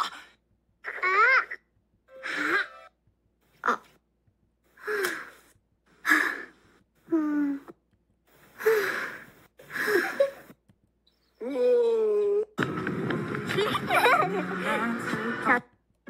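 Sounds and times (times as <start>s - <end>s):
breathy gasps and sighs: 4.7s - 10.6s.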